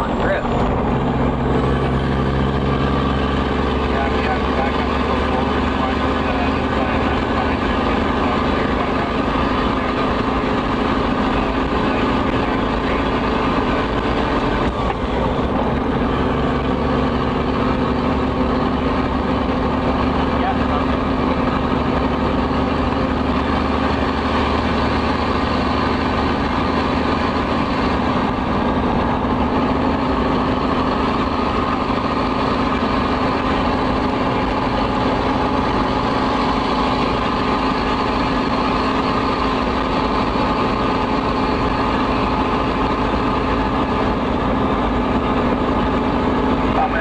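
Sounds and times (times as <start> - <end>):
diesel truck engine running: 0.0 - 47.0.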